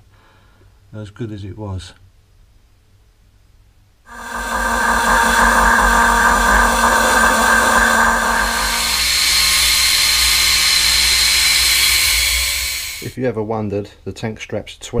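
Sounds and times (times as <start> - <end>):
angle grinder cutting steel: 4.1 - 13.1.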